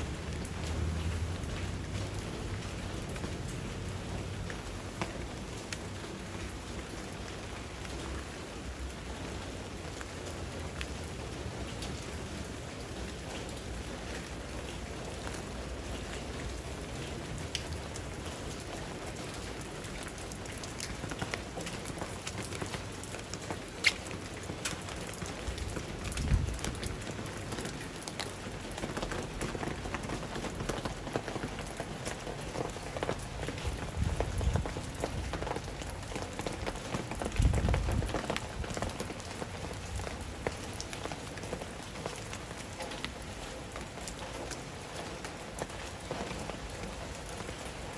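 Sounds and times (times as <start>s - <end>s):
rain on ground and foliage: 0.0s - 47.9s
sandal footsteps on wet ground: 19.3s - 47.9s.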